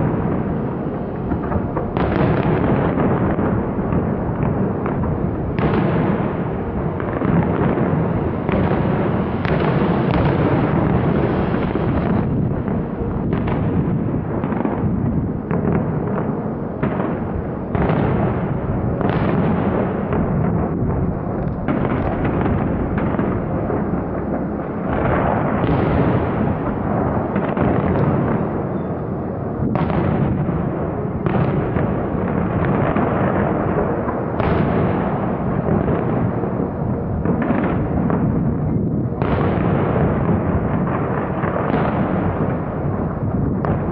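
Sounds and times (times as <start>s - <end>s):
fireworks crackling: 0.0s - 43.9s
firework shell bursts booming: 37.2s - 43.9s.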